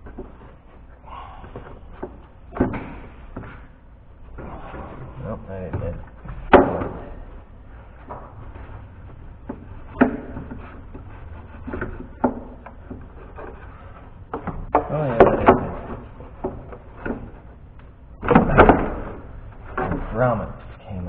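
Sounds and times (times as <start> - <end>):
plastic and metal parts knocking: 5.7 - 7.4, 8.0 - 20.2.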